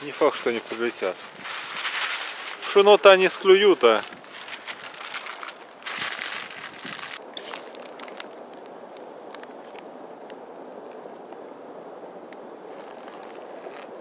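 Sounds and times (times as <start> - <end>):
faint outdoor hiss: 0.0 - 14.0
bread crumbling by hand: 3.8 - 8.7.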